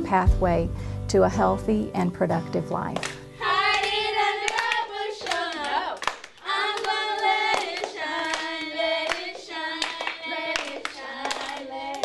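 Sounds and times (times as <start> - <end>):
handclaps: 3.0 - 12.0
children singing: 3.4 - 12.0.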